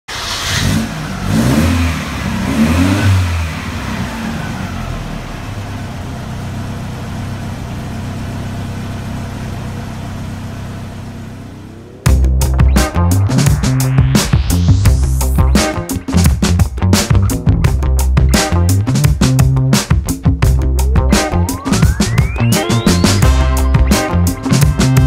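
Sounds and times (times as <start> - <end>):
vehicle engine revving and idling: 0.1 - 12.6
music: 11.8 - 25.0.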